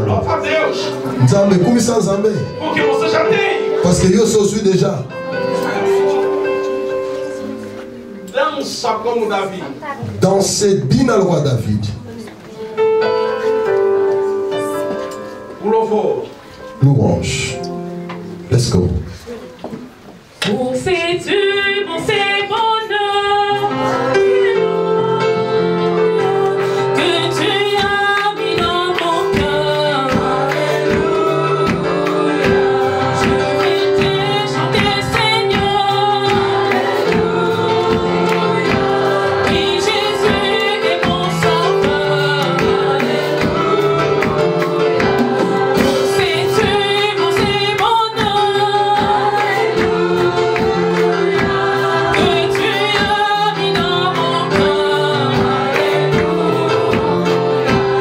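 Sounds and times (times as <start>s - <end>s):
gospel group singing: 0.0s - 9.5s, 20.2s - 58.0s
instruments with steady beat: 27.8s - 58.0s.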